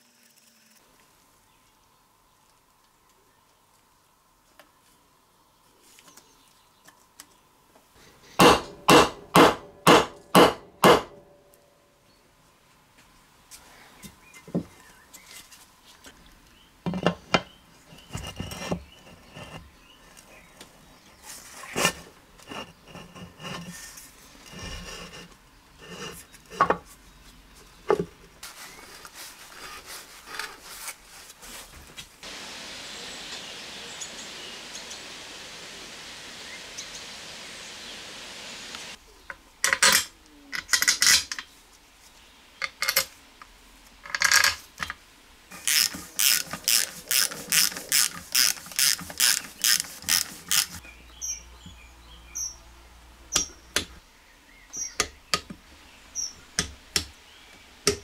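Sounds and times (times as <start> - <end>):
steady hiss: 28.3 - 39.2, 41.4 - 51.4
ratchet wrench clicking: 45.7 - 50.8.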